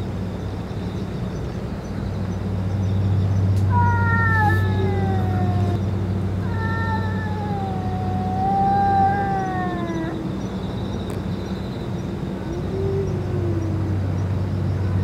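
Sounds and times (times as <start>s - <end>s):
cats yowling: 3.7s - 10.6s, 12.4s - 14.2s.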